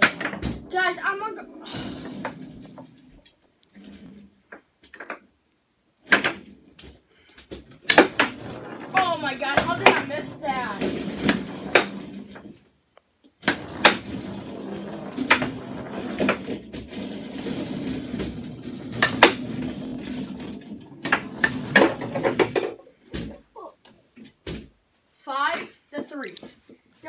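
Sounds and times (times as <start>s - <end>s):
foosball ball clacks: 0.0s - 0.7s, 6.0s - 12.5s, 13.4s - 23.4s
rattle of foosball rods: 0.0s - 0.8s, 1.7s - 5.2s, 6.0s - 12.6s, 13.4s - 24.8s.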